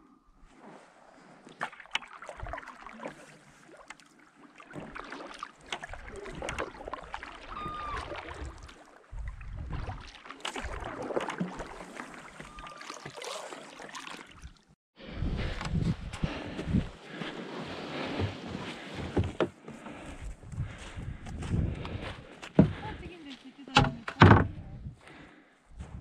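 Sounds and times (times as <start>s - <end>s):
paddle blades splashing water: 0.6s - 14.8s
water washing along hull: 1.2s - 14.6s.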